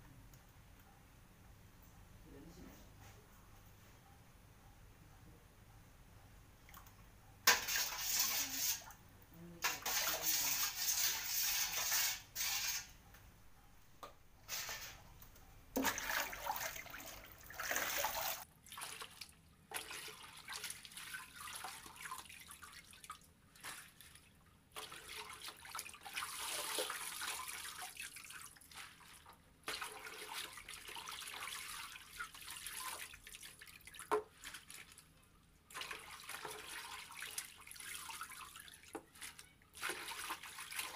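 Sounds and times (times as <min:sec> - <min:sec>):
strainer basket scooping in water: 0:07.5 - 0:09.0, 0:14.4 - 0:15.1, 0:15.8 - 0:22.8, 0:24.8 - 0:35.1, 0:35.7 - 0:40.9
water sloshing and splashing: 0:15.8 - 0:40.9.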